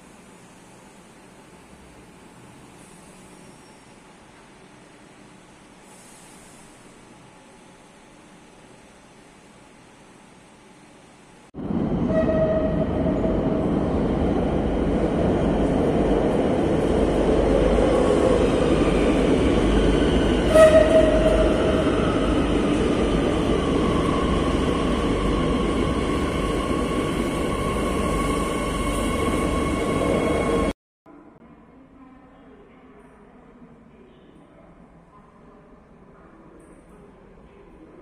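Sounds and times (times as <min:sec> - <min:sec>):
falling whine of train: 0:11.6 - 0:30.8
train horn toot: 0:12.0 - 0:13.2, 0:20.4 - 0:21.5.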